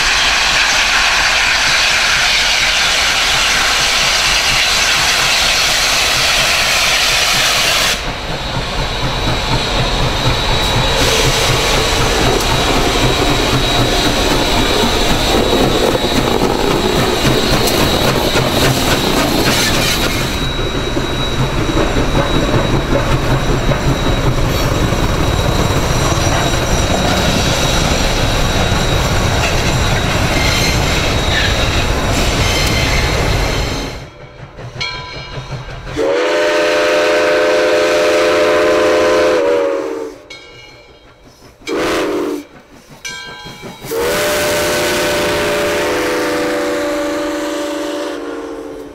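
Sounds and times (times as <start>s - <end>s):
high steady squeal: 0.0s - 36.0s
steel wheels clattering on rails: 0.0s - 36.9s, 40.3s - 45.8s
steam locomotive exhaust: 0.0s - 48.9s.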